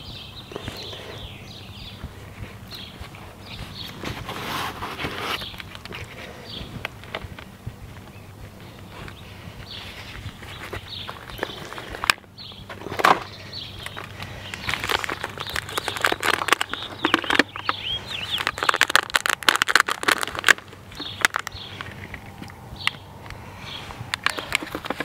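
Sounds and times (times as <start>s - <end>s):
bird chirps: 0.0s - 19.4s, 20.8s - 25.0s
potting soil rustling: 0.0s - 25.0s
plastic cell packs crackling: 10.0s - 23.4s, 24.1s - 25.0s.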